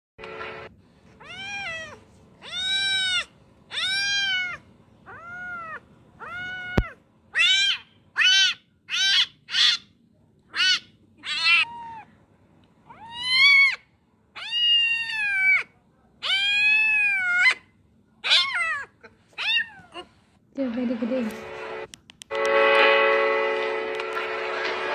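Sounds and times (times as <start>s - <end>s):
kitten meowing: 1.2s - 9.8s, 10.6s - 12.1s, 12.9s - 13.8s, 14.4s - 17.6s, 18.2s - 20.1s.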